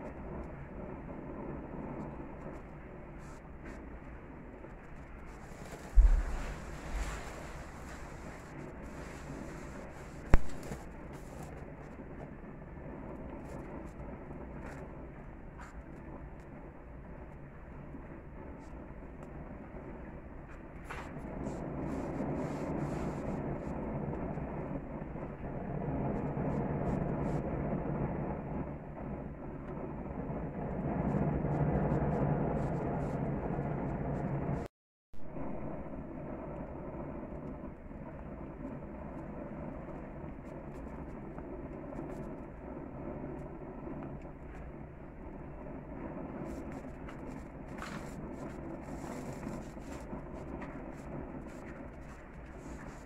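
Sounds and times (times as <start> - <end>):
gas burner flame rushing: 0.0 - 16.2, 18.4 - 28.6, 38.5 - 53.0
small pops and crackles: 0.0 - 28.0, 37.3 - 53.0.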